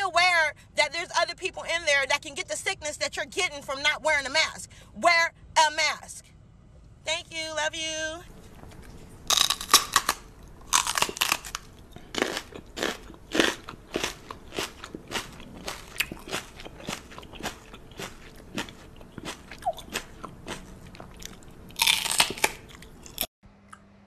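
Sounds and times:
person chewing crunchy food: 8.3 - 23.3.

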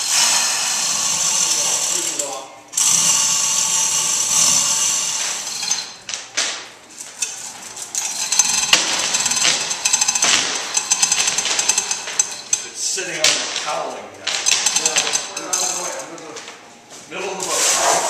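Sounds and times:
chain hoist whirring: 0.0 - 6.0, 7.2 - 13.0, 14.3 - 16.2.

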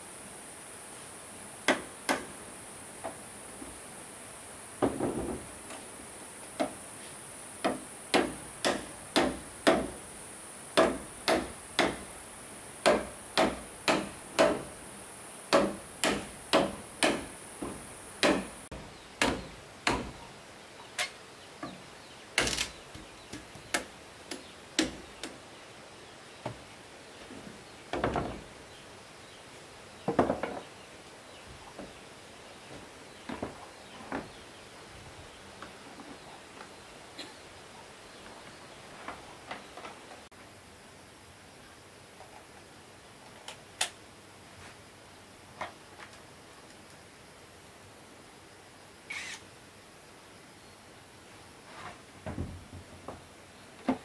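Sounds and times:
steady high-pitched hiss: 0.0 - 54.0
tool striking wood: 7.6 - 10.0, 10.8 - 12.1, 12.8 - 14.7, 15.5 - 18.6, 19.2 - 20.2, 23.7 - 25.0.

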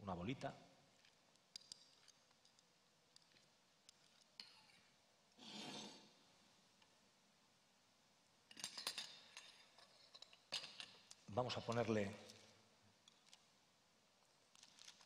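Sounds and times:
metal spoons clicking: 1.0 - 2.6, 8.5 - 11.2.

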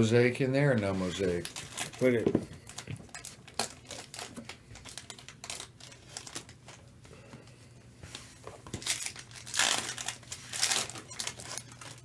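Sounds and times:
foil wrappers crinkling: 0.9 - 6.8, 8.6 - 12.0.

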